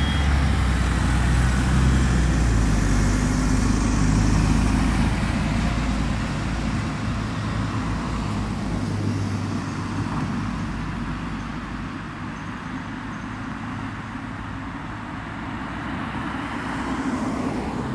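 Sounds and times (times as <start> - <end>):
bus engine hum: 0.0 - 17.9
road traffic noise: 0.0 - 17.9.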